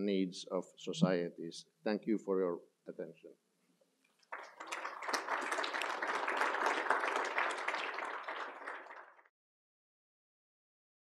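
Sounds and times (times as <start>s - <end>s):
audience applauding: 4.3s - 9.3s.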